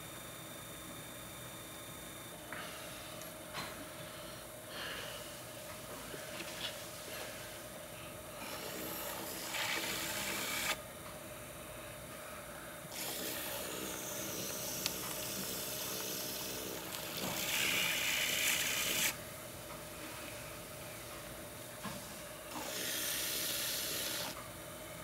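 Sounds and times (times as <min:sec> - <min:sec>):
pottery wheel humming: 0:00.0 - 0:25.0.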